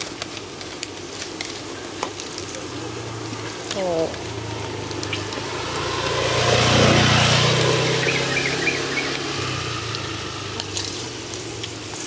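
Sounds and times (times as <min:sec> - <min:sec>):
motorbike passing by: 0:02.8 - 0:12.0.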